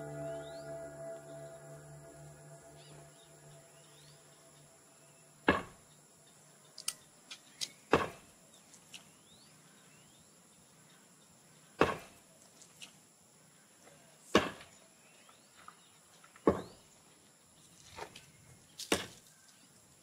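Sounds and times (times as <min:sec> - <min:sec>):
low steady tone: 0:00.0 - 0:06.7
faint high chirps: 0:00.0 - 0:07.9.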